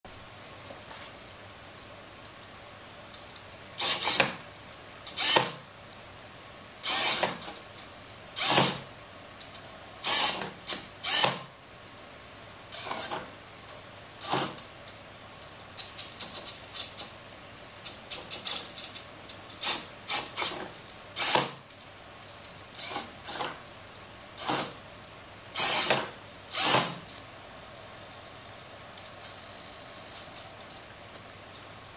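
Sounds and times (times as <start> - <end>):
servo motors whirring: 3.8 - 4.3, 5.1 - 5.6, 6.8 - 7.5, 8.4 - 8.9, 10.0 - 11.4, 12.7 - 13.2, 19.6 - 21.6, 22.8 - 23.5, 25.6 - 27.0.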